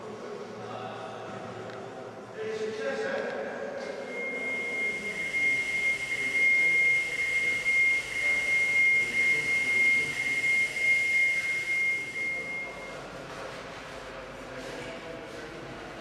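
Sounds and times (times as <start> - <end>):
steady high-pitched tone: 4.0 - 13.1.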